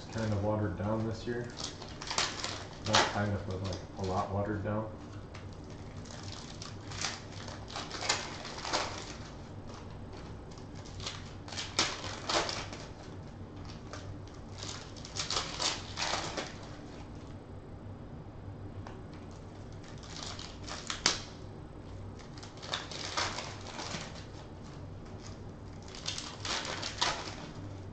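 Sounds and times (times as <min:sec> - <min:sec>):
foil wrappers tearing and crinkling: 0:00.0 - 0:04.6, 0:05.2 - 0:17.2, 0:19.3 - 0:21.4, 0:22.1 - 0:27.9
cards being handled: 0:00.0 - 0:17.1.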